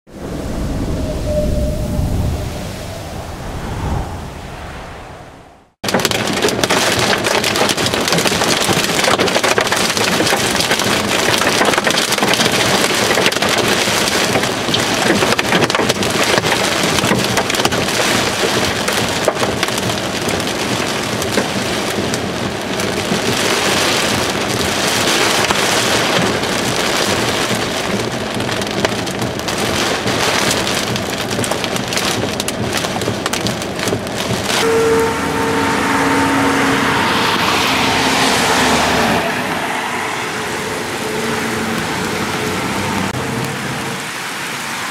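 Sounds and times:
hail clattering on vehicle roof: 0:05.8 - 0:34.6.

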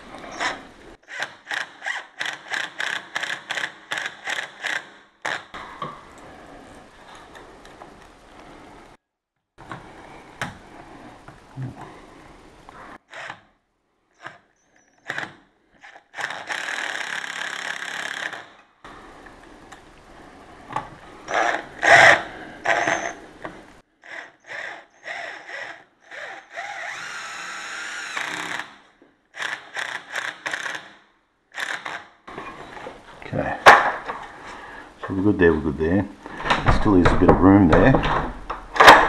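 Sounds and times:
power drill driving screws into metal: 0:25.0 - 0:28.8.

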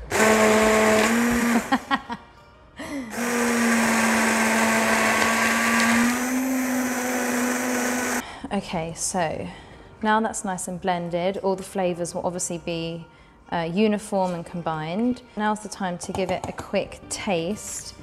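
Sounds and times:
hand blender motor whirring: 0:00.0 - 0:01.8, 0:03.1 - 0:08.2.

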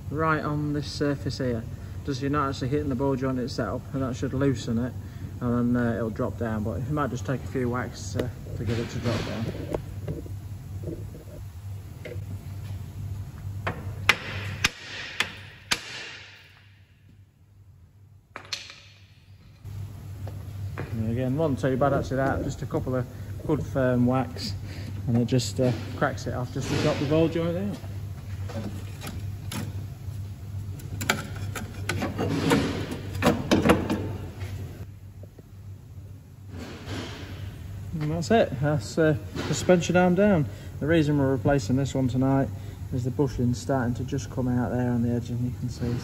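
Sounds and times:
metal knocks clanks and scrapes: 0:08.5 - 0:10.2, 0:25.4 - 0:27.6, 0:31.0 - 0:34.2, 0:36.5 - 0:37.4
hammer striking metal: 0:14.1 - 0:16.9.

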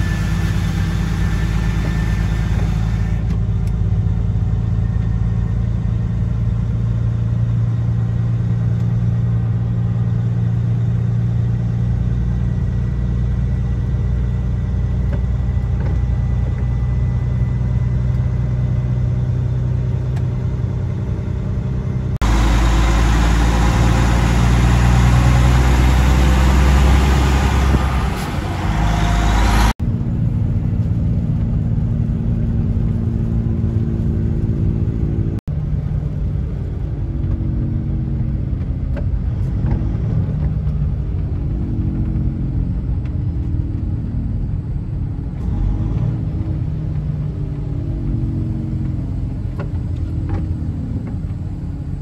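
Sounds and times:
diesel engine droning: 0:00.0 - 0:52.0
loud rushing noise: 0:22.2 - 0:29.8.

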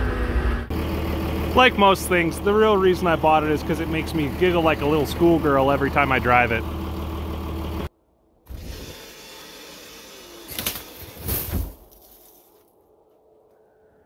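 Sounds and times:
diesel engine idling: 0:00.1 - 0:07.9
snow crunching: 0:11.8 - 0:12.9.

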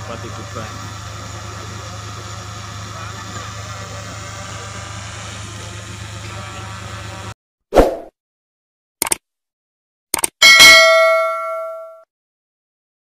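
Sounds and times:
bell-like ding: 0:10.4 - 0:12.1.

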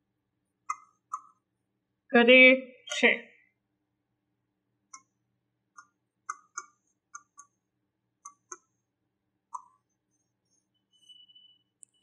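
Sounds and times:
stylus tapping on touchscreen: 0:00.6 - 0:01.4, 0:04.9 - 0:07.6, 0:08.2 - 0:08.8, 0:09.5 - 0:09.9.

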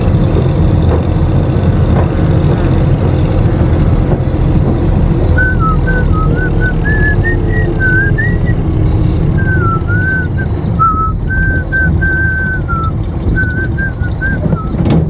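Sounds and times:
loud low rumble: 0:00.0 - 0:15.0
person whistling a tune: 0:05.3 - 0:08.6, 0:09.4 - 0:14.9.

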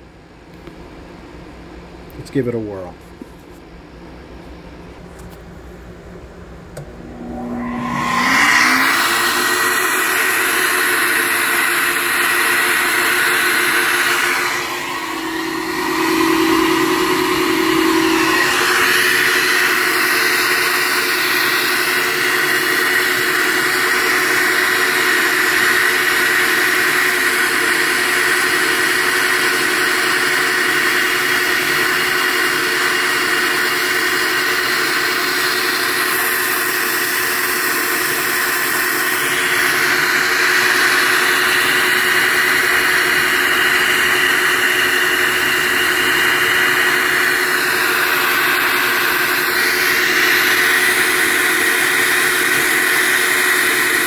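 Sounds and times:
motor hum: 0:03.2 - 0:54.0
rushing roar of air: 0:06.8 - 0:25.9, 0:39.1 - 0:52.4.

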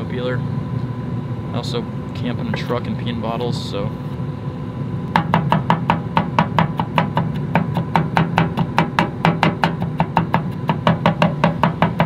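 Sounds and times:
knife chopping on cutting board: 0:05.2 - 0:12.0.

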